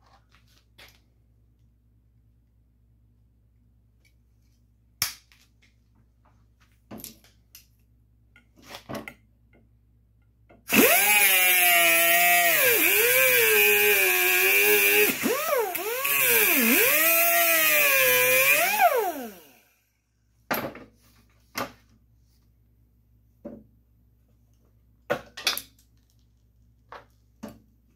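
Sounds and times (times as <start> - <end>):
angle grinder cutting metal: 10.7 - 19.6.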